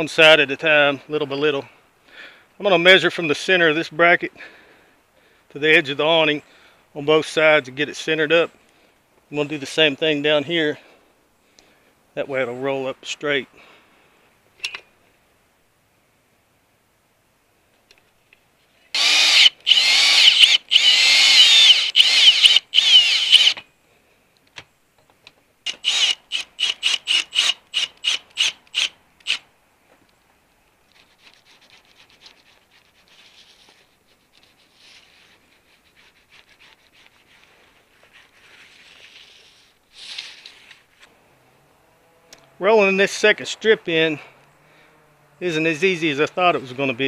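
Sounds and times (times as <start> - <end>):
cordless drill whining: 18.9 - 23.6, 25.7 - 29.4
faint rubbing: 30.9 - 41.1.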